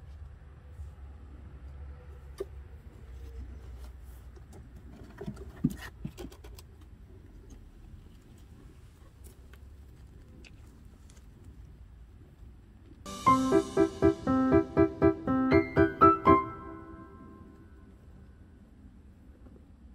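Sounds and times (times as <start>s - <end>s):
clicks and rustles: 3.8s - 11.7s.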